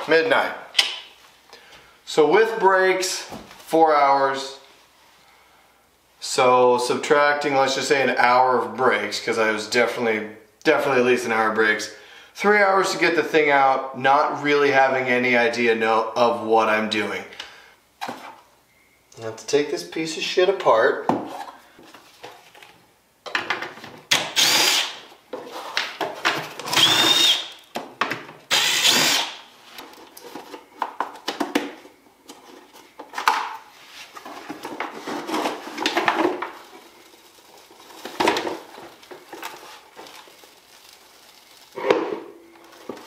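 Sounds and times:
cordless drill spinning: 0:24.2 - 0:25.0, 0:26.7 - 0:27.6, 0:28.5 - 0:29.4
hard plastic knocking and handling: 0:29.8 - 0:33.6, 0:34.2 - 0:36.6.

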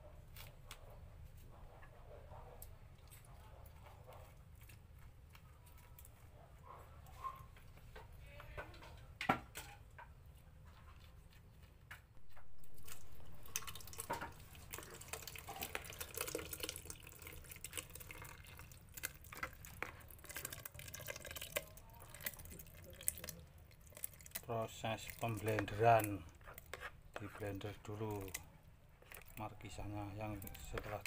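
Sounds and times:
spoon scooping wet fruit pulp: 0:10.7 - 0:31.0.

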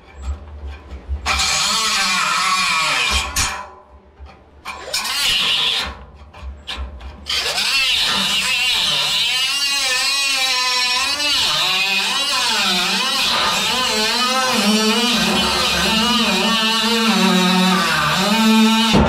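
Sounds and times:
grinder cutting steel: 0:01.3 - 0:03.7, 0:07.3 - 0:19.0.

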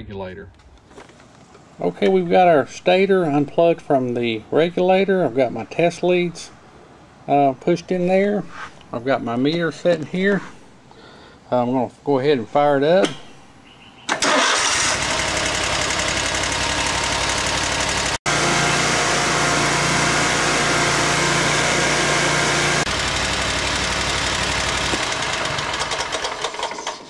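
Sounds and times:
mower engine running: 0:14.2 - 0:27.0.

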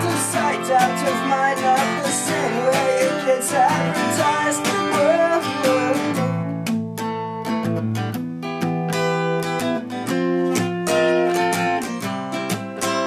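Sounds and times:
man singing: 0:00.0 - 0:06.7
acoustic guitar strumming: 0:00.0 - 0:13.0.

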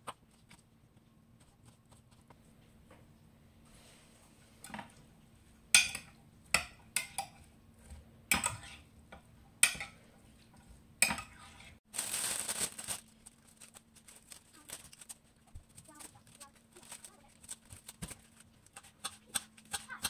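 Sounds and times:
lettuce leaves rustling: 0:11.9 - 0:18.7.

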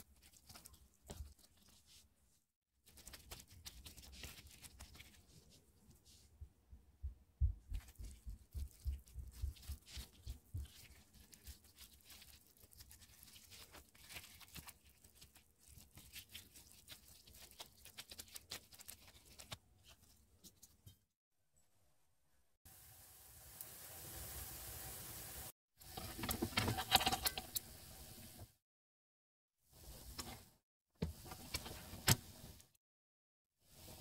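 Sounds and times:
sticky dough squelching: 0:00.0 - 0:02.2, 0:02.8 - 0:06.2, 0:07.5 - 0:20.8
small sticky clicks and crackles: 0:07.7 - 0:20.8.

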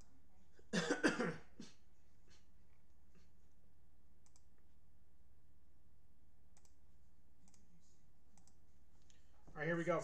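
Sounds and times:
low electrical hum: 0:00.0 - 0:10.0
computer mouse clicks: 0:04.2 - 0:04.7, 0:06.5 - 0:06.8, 0:07.4 - 0:07.7, 0:08.3 - 0:09.2.

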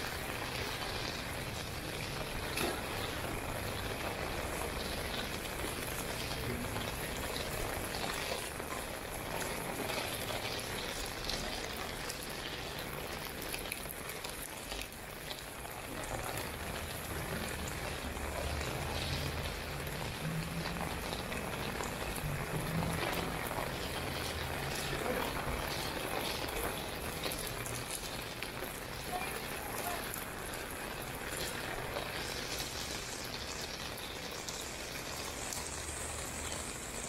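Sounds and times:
steady rain on street: 0:00.0 - 0:37.0.

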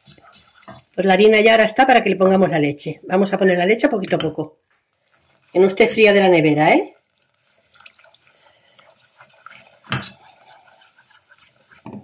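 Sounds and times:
whisk stirring sauce: 0:00.0 - 0:01.1, 0:05.0 - 0:05.8, 0:07.0 - 0:12.0
milk pouring into saucepan: 0:06.9 - 0:12.0.

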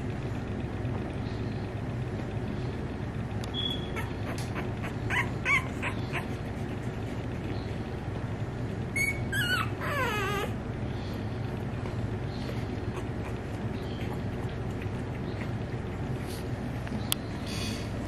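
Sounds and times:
puppies whimpering: 0:03.6 - 0:08.0, 0:08.8 - 0:11.2, 0:12.4 - 0:16.3.

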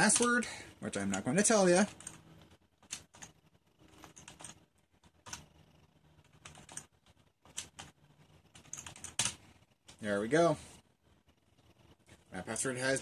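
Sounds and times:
computer keyboard keystrokes: 0:01.8 - 0:05.5, 0:06.2 - 0:08.0, 0:08.6 - 0:09.4.

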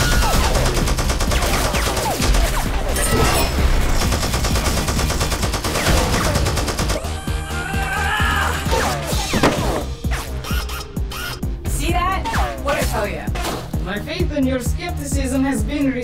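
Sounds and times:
rapid automatic gunfire: 0:00.0 - 0:03.0, 0:03.7 - 0:07.0.

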